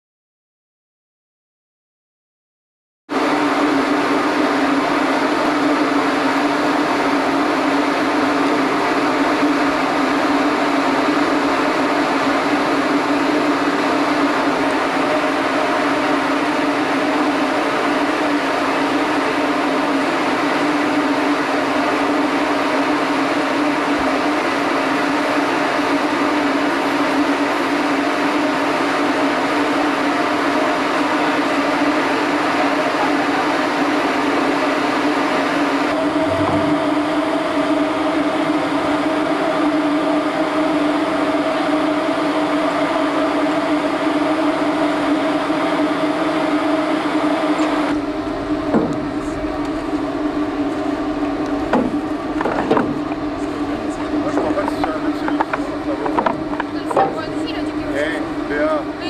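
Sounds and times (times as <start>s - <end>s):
ship machinery drone: 3.1s - 59.0s
even rushing noise: 36.0s - 37.7s.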